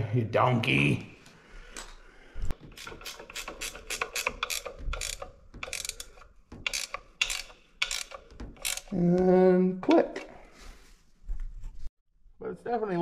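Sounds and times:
ratchet wrench clicking: 2.7 - 9.0.

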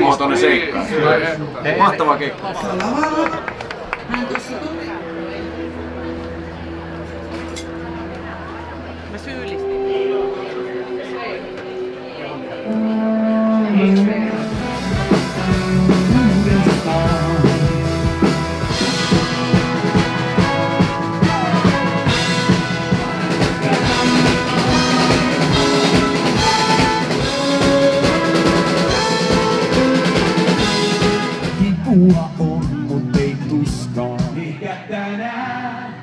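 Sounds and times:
pop rock band playing: 12.7 - 35.9.

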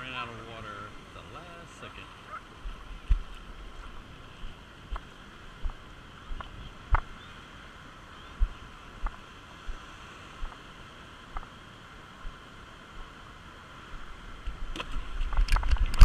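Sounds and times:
shallow surf rushing: 0.0 - 16.0
wind on microphone: 8.2 - 10.6, 14.0 - 16.0.

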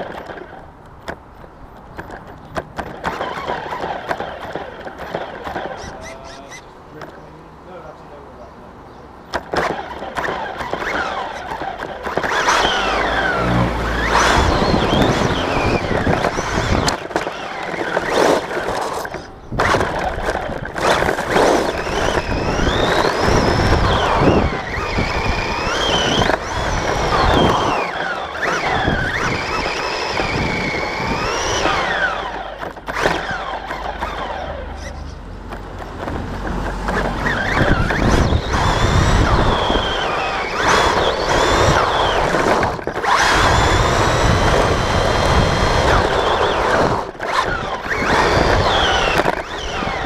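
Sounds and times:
tyre and chassis rattle: 9.3 - 50.0
electric motor whining: 9.6 - 35.2, 35.8 - 50.0.

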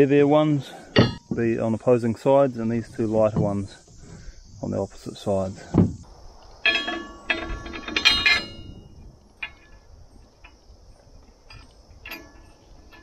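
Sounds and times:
metal blade clanking on steel disc: 6.6 - 9.8, 11.5 - 13.0.

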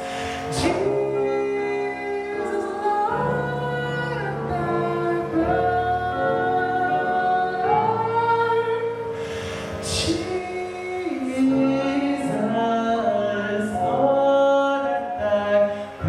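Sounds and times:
man singing: 9.8 - 16.0.

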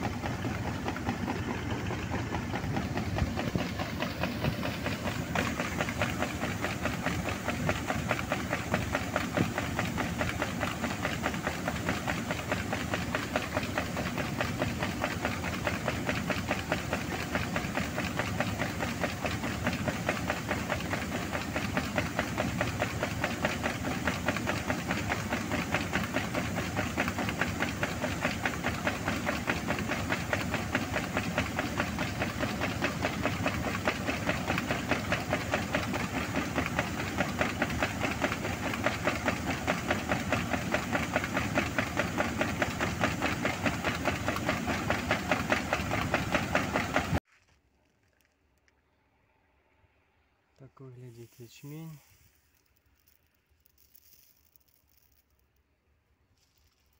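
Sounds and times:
combine harvester engine: 0.0 - 47.2, 50.6 - 55.2
grain pouring: 50.8 - 55.6, 56.3 - 56.9.

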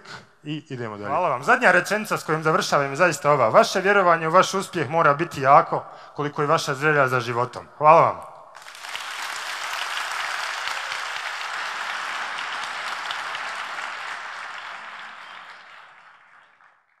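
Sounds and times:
audience applauding: 8.6 - 17.0.

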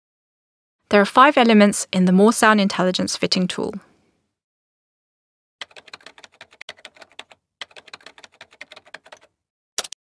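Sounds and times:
keyboard typing: 5.6 - 10.0.

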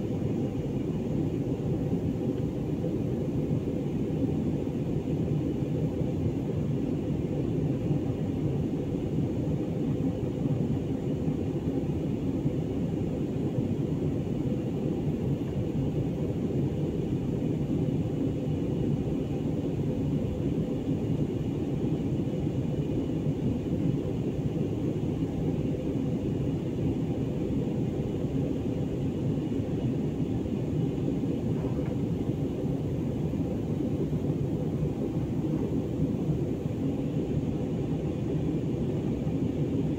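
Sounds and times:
airliner cabin rumble: 27.3 - 39.9.

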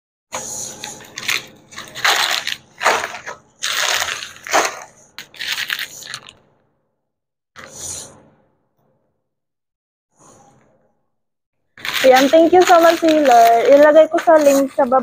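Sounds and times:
plastic packets crinkling: 0.9 - 6.4, 11.8 - 15.0.

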